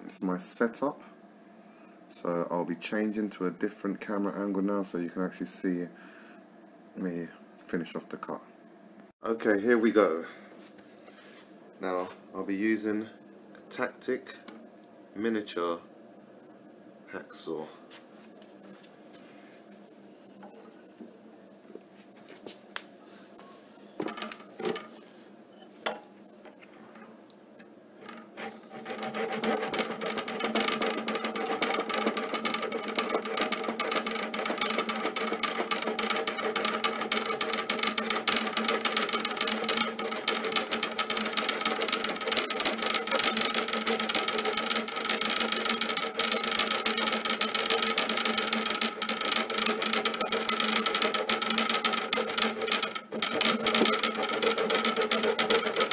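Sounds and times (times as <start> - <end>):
hacksaw cutting metal: 28.0 - 55.9.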